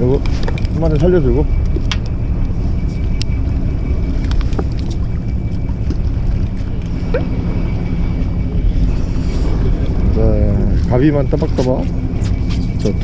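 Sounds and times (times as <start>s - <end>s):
boat engine rumble: 0.0s - 13.0s.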